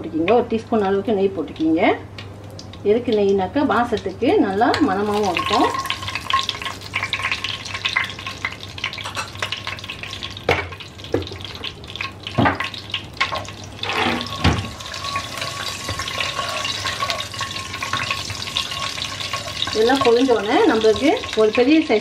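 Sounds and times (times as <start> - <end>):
spices sizzling in hot oil: 1.4 - 22.0.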